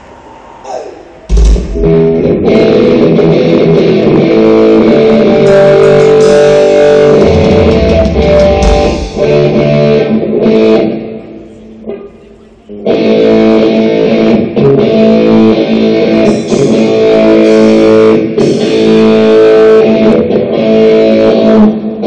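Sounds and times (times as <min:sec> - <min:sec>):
electric guitar and bass playing: 0:00.0 - 0:22.0
sudden low hit: 0:01.3 - 0:02.5.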